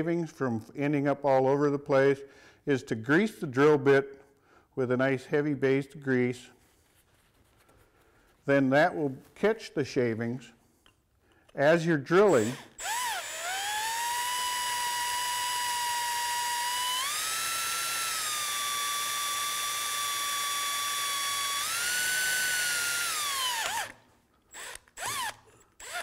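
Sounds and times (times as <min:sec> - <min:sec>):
electric drill whining: 0:12.2 - 0:26.0.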